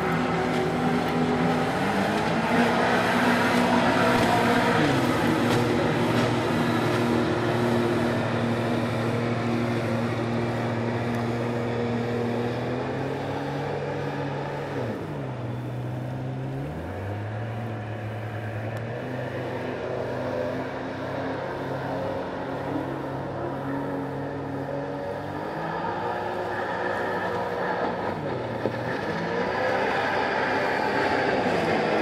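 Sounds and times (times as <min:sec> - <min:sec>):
boat engine running: 0:00.0 - 0:32.0.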